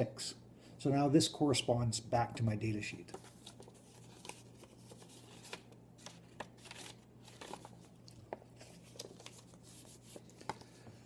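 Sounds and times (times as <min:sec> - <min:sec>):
paper rustling and crinkling: 0:03.1 - 0:10.9.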